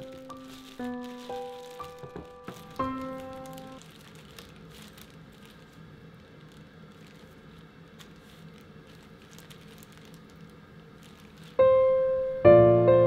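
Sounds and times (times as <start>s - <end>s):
dough squishing: 0.0s - 11.6s
plastic wrap crinkling: 0.0s - 12.2s.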